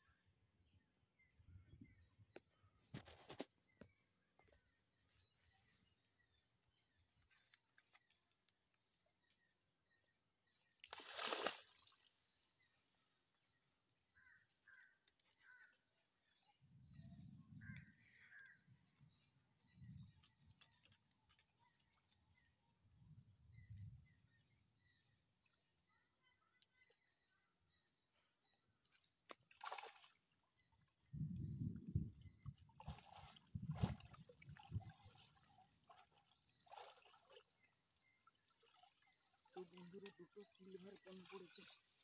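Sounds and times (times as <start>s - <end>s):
net splashing out of water: 10.8s - 12.0s, 29.5s - 30.2s, 32.8s - 37.4s
faint bird chirps: 14.2s - 28.6s.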